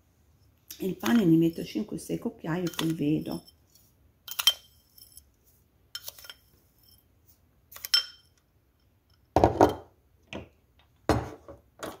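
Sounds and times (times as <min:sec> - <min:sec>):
metal spoon clinking on glass bowl: 0:02.6 - 0:03.6, 0:04.3 - 0:05.2, 0:06.0 - 0:07.0, 0:07.8 - 0:08.3
glass bowl knocking on stone countertop: 0:09.4 - 0:09.9.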